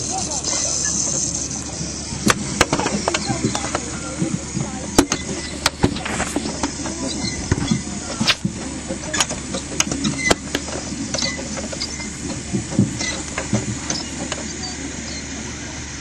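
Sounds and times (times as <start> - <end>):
steam hissing: 0.0 - 16.0
sharp clicks and knocks: 2.2 - 14.6.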